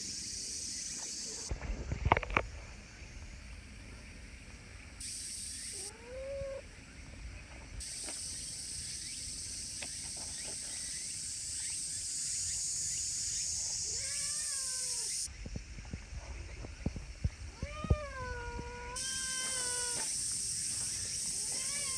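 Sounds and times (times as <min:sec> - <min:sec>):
steady high hiss: 0:02.4 - 0:06.0, 0:06.6 - 0:21.9
cat meowing: 0:13.9 - 0:15.1, 0:17.5 - 0:20.1, 0:21.4 - 0:21.9.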